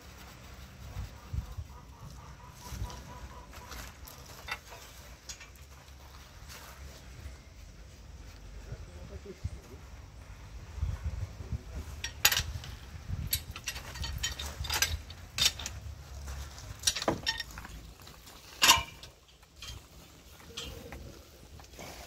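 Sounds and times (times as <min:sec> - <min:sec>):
metal rod clinking and knocking: 0:12.0 - 0:15.9, 0:16.7 - 0:21.2.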